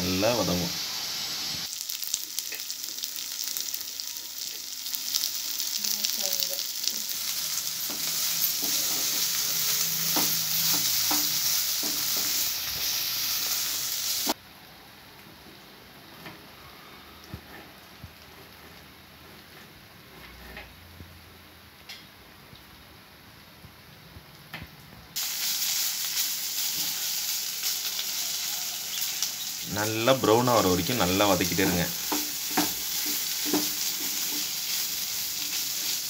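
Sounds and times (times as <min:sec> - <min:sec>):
chicken sizzling in oil: 0:00.0 - 0:14.4, 0:25.2 - 0:36.0
wooden spatula scraping and clacking: 0:07.7 - 0:12.5, 0:30.6 - 0:36.0.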